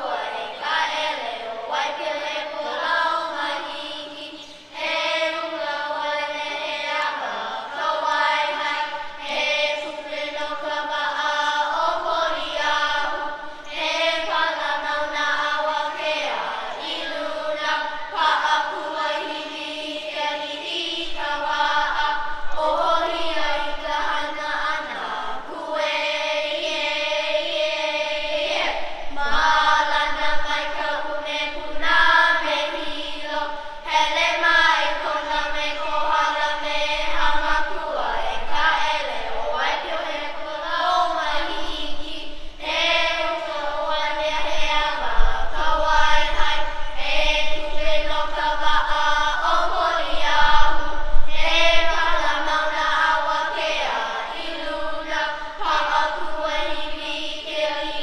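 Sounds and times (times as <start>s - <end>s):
children chanting in unison: 0.0s - 58.0s.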